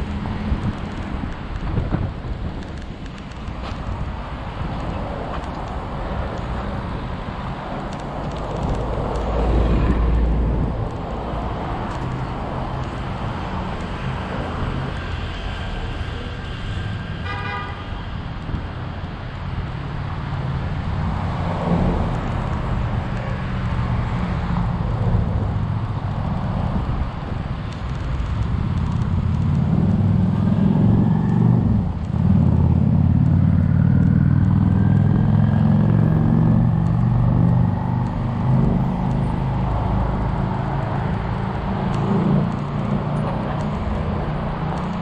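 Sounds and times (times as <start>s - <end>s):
road and wind noise: 0.0s - 45.0s
vehicles passing close by: 0.0s - 45.0s.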